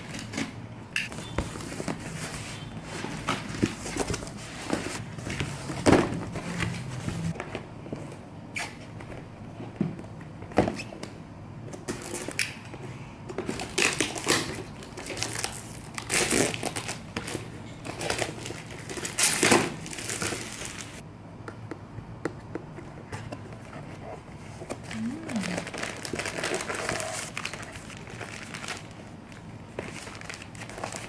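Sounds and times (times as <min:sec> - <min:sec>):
plastic wrap crinkling: 0:18.0 - 0:21.0, 0:24.9 - 0:31.0.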